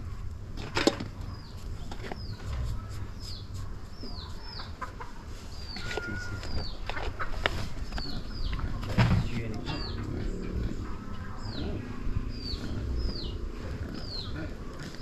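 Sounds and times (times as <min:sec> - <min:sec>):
bird chirping: 0:01.1 - 0:15.0.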